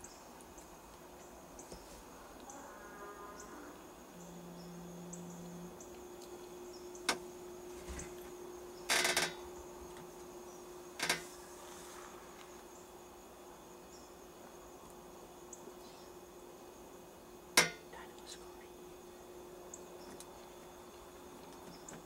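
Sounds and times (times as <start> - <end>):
faint insect chirping: 0.0 - 22.0
scrape: 11.2 - 12.4.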